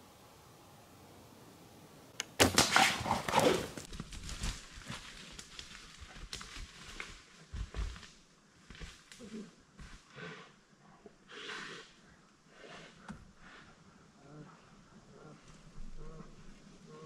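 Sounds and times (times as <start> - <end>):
crashing in brush: 2.4 - 8.2.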